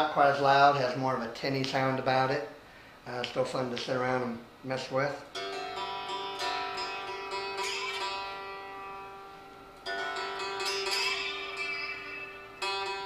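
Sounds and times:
guitar note gliding up: 5.3s - 13.0s
resonator guitar chords tinny: 5.3s - 13.0s.

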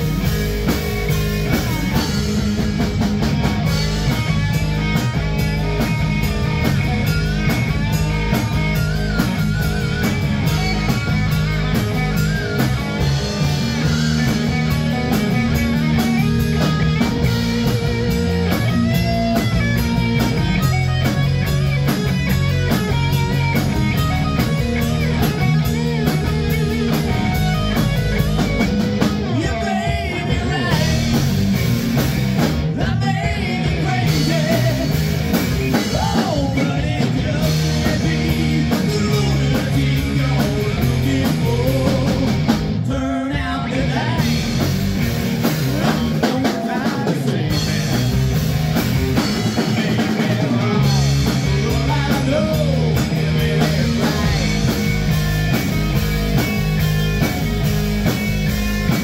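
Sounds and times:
bass line: 0.0s - 59.0s
distorted electric guitars: 0.0s - 59.0s
drum kit: 0.0s - 59.0s
man singing: 29.2s - 31.3s, 32.7s - 35.1s, 35.7s - 44.6s, 45.7s - 48.2s, 49.4s - 54.8s.

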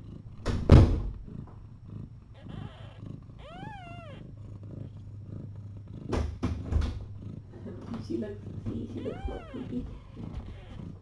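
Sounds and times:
cat purring: 0.0s - 11.0s
cat meow: 2.4s - 4.3s, 9.0s - 11.0s.

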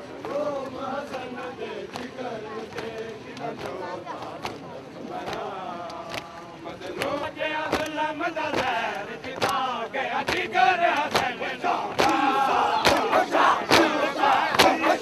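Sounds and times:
men chanting together: 0.1s - 15.0s
sharp hand slaps: 12.8s - 13.1s.

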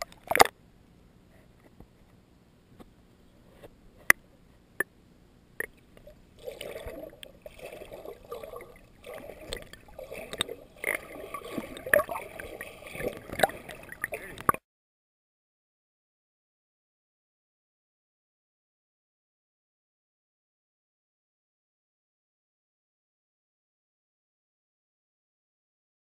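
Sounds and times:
muffled underwater water churning: 5.6s - 14.6s.

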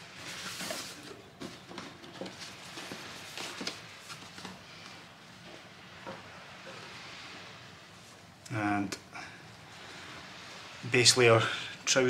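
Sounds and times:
cardboard rustling: 0.0s - 4.7s.

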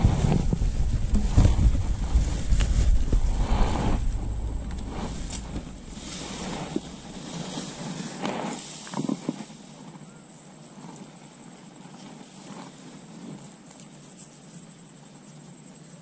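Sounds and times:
wind buffeting microphone: 0.0s - 8.6s
umbrella fabric rustling: 0.0s - 9.4s.

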